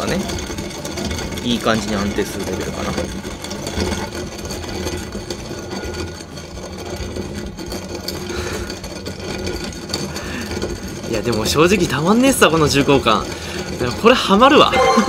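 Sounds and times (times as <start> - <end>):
hand coffee grinder grinding beans: 0.0 - 15.0.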